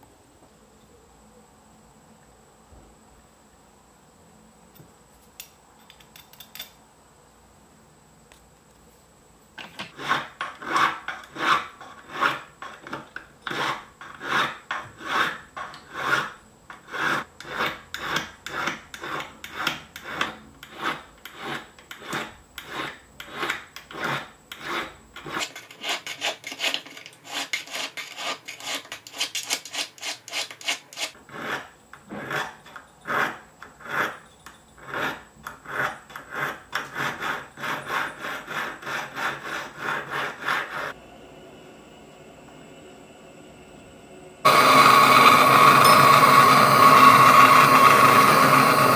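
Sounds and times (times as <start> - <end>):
file scraping metal: 9.6 - 41.0, 44.4 - 48.9.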